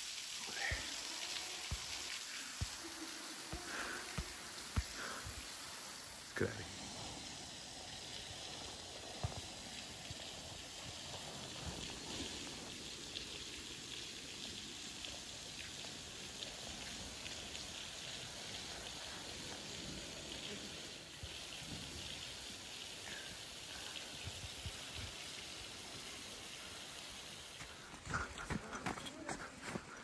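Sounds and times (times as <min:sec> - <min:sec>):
water hissing: 0:00.0 - 0:30.0
light patter: 0:27.6 - 0:30.0.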